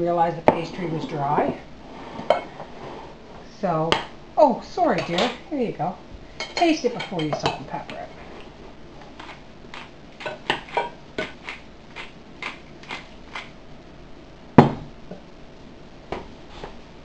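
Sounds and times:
knock on wooden table: 14.6 - 14.9.

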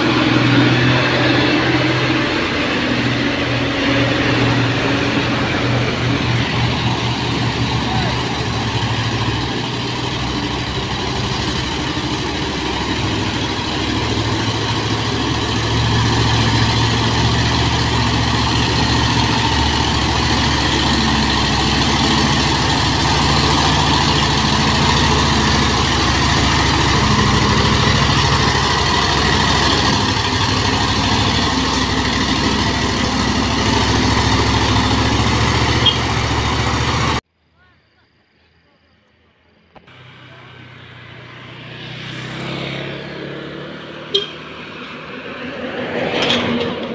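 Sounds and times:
diesel truck engine running: 0.0 - 37.2.

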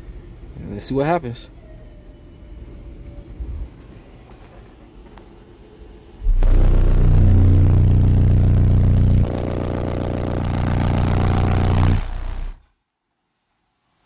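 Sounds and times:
subwoofer bass drone with buzz: 6.2 - 12.7.

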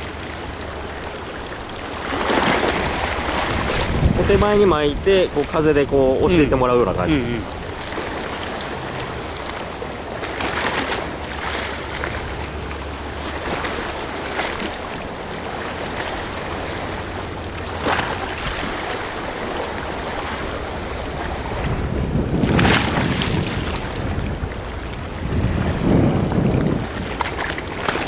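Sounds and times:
sea waves washing against rocks: 0.0 - 28.0
wind rumbling on microphone: 0.0 - 28.0.

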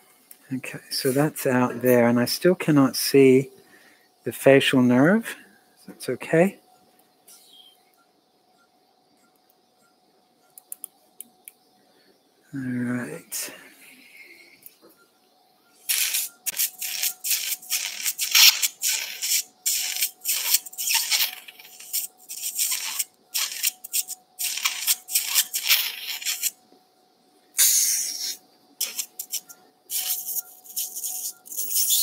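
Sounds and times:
faint steady tone: 0.0 - 18.0
suction hissing slurps: 27.6 - 32.0.

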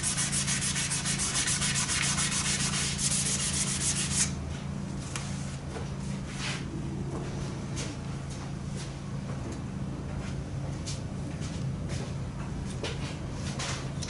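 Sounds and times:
sandpaper rubbing on panel: 0.0 - 4.4.

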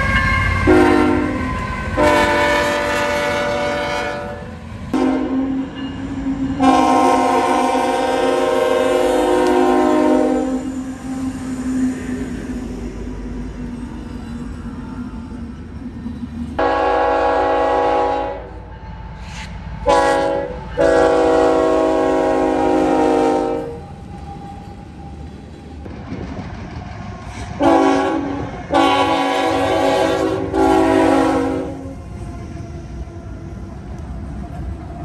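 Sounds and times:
trains rumbling past: 0.0 - 35.0
locomotive air horn blasts: 0.1 - 5.6, 6.6 - 11.3, 16.6 - 18.7, 19.8 - 23.8, 27.6 - 32.0.

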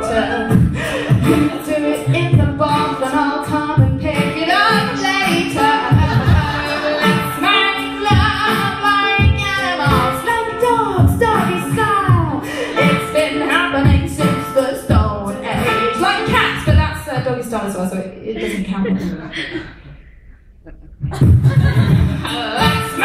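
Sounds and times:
woman singing: 0.0 - 18.0, 22.2 - 23.0
man beatboxing: 21.0 - 23.0.

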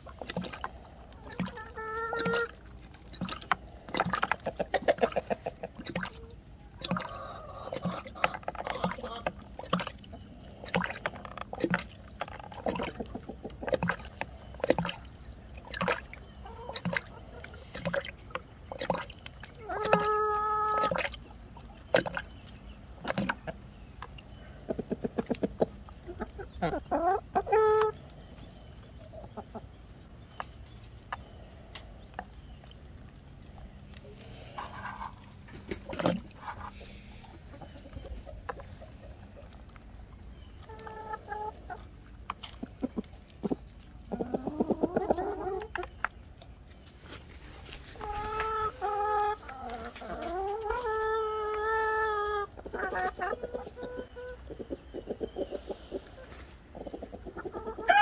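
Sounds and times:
beaks tapping and splashing: 0.0 - 26.9
hens drinking water: 0.0 - 58.0.

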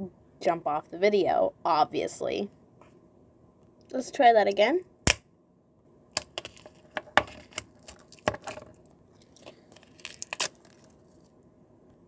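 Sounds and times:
plastic wrap crinkling and tearing: 6.2 - 11.4.

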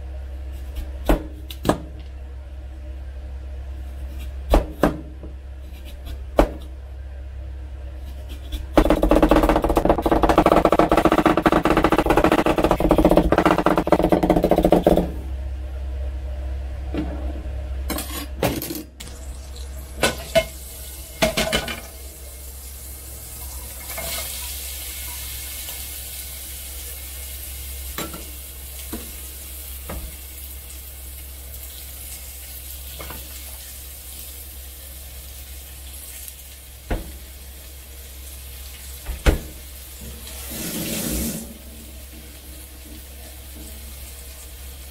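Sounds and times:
food sizzling in frying pan: 19.0 - 44.9.

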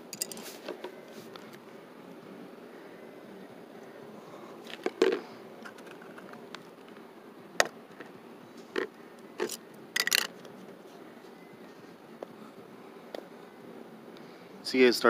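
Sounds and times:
steady low hum: 0.0 - 15.0
plastic objects clicking on asphalt: 4.7 - 7.0.

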